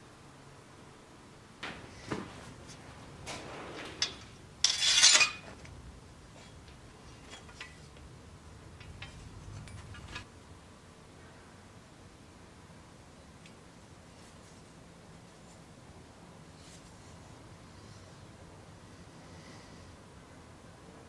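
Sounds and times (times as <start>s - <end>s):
metal scraping along sword blade: 4.0s - 5.6s.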